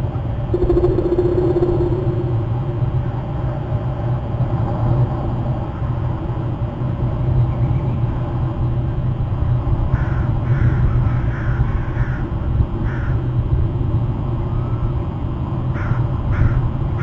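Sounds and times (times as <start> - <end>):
low rumble: 0.5 - 4.6
crow cawing: 10.0 - 12.2, 12.9 - 13.2.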